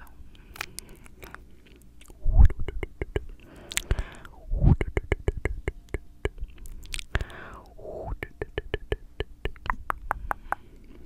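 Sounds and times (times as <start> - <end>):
tongue clicks: 2.0 - 10.8.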